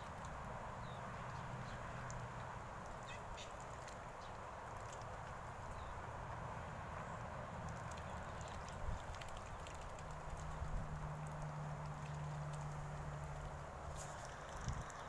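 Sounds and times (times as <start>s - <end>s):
ducks splashing in water: 0.0s - 15.0s
duck dabbling clicks: 7.6s - 13.5s.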